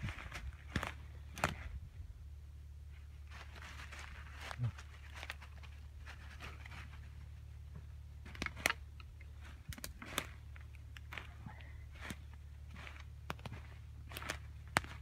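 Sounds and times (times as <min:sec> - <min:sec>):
low rumble: 0:00.0 - 0:15.0
twigs snapping: 0:00.2 - 0:01.7, 0:08.2 - 0:15.0
leaves crunching underfoot: 0:02.9 - 0:07.4, 0:08.2 - 0:15.0.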